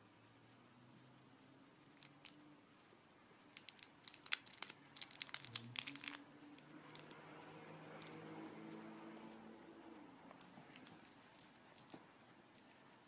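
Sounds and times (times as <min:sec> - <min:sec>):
candy wrapper crackling: 0:02.0 - 0:02.4, 0:03.5 - 0:07.2.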